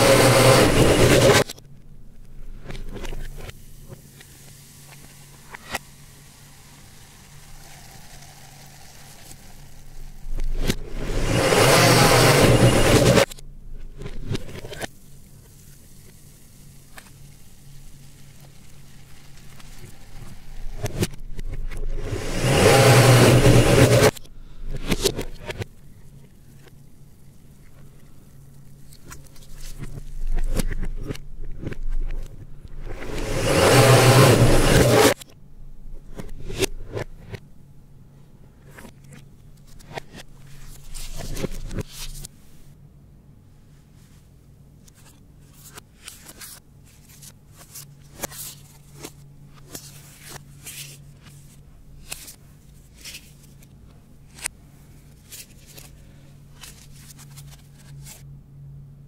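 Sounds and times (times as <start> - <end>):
blender motor running: 0.0 - 1.4, 5.5 - 13.3, 21.9 - 24.1, 33.0 - 35.2
low steady hum: 0.0 - 59.0
paper rustling and crinkling: 27.6 - 32.2, 38.7 - 42.3, 44.8 - 58.3.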